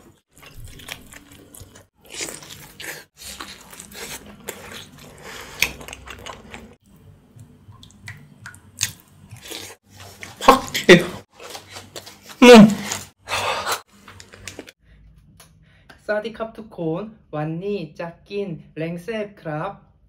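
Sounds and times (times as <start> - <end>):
biting and wet chewing: 0.0 - 14.8.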